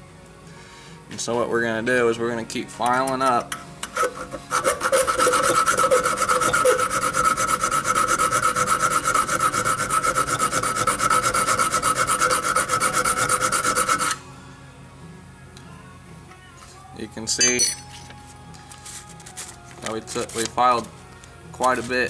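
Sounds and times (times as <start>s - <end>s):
hand file rasping on steel: 3.8s - 14.2s
metal ringing: 17.4s - 18.1s.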